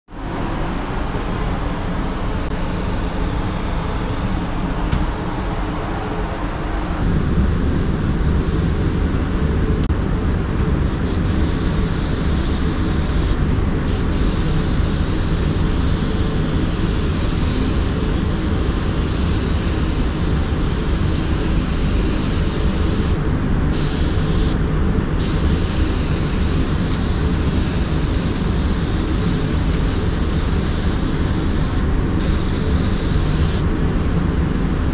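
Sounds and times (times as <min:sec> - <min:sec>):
steady low rumble: 0:00.1 - 0:34.9
paint spray gun hissing: 0:10.8 - 0:24.6, 0:25.2 - 0:33.6.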